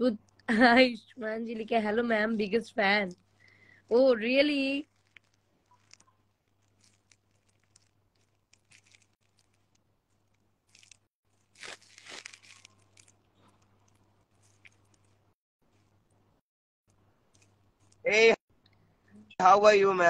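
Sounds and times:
faint clicks and rustles: 4.5s - 18.0s.

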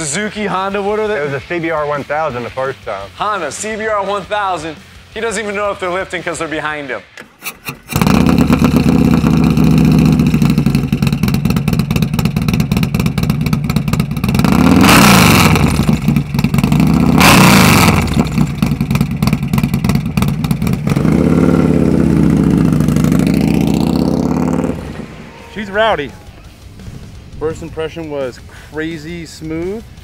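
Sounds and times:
motorcycle engine idling and revving: 7.5s - 30.0s.

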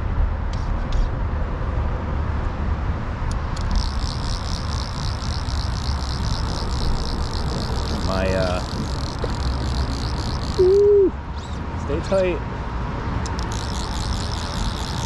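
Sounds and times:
steady low rumble: 0.0s - 15.0s
fly reel ratchet clicking: 3.3s - 10.8s, 13.2s - 15.0s.

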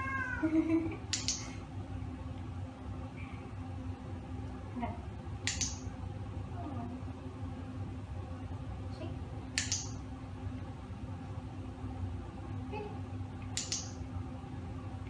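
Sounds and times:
low steady hum: 0.0s - 15.0s
sharp double clicks: 1.1s - 1.4s, 5.4s - 5.8s, 9.6s - 10.0s, 13.5s - 14.0s.

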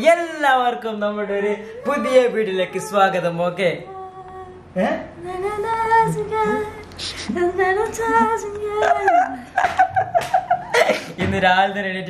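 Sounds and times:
woman singing unaccompanied: 1.2s - 9.6s.

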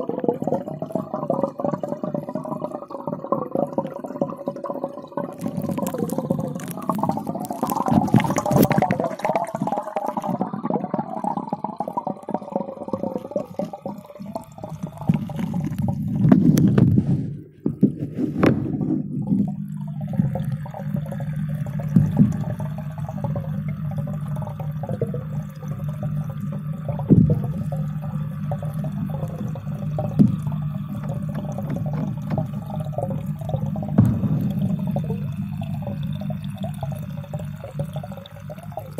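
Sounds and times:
muffled water burbling and sloshing: 0.0s - 38.9s
steady low hum: 14.9s - 38.9s.

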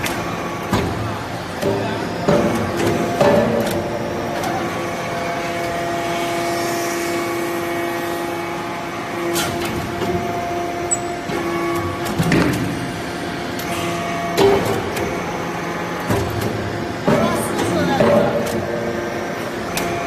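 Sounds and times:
hydraulic power unit hum: 0.0s - 20.0s
press knocking and clanking: 1.6s - 4.5s.

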